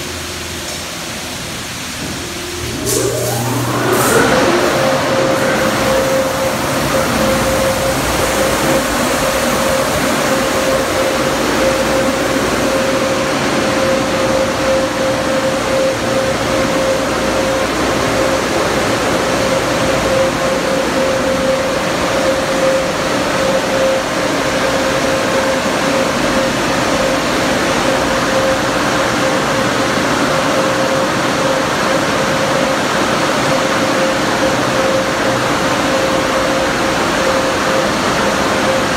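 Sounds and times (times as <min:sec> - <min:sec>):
dryer blowers rushing air: 0:00.0 - 0:38.9.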